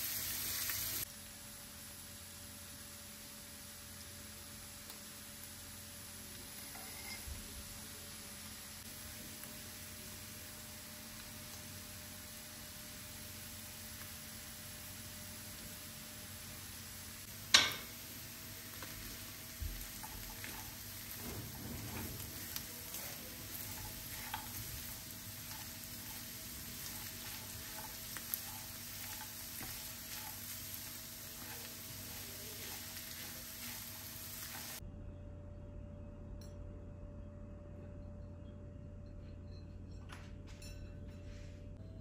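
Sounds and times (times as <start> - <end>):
food sizzling in a frying pan: 0.0 - 34.8
steady hum: 5.5 - 42.0
spatula tapping and scraping: 18.7 - 34.8.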